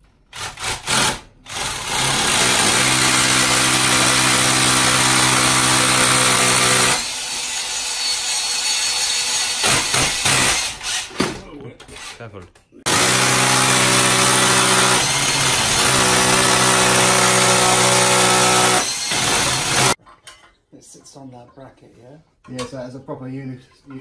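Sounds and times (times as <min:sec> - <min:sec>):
hammer drill boring into brick: 0:00.3 - 0:11.2, 0:12.9 - 0:20.0.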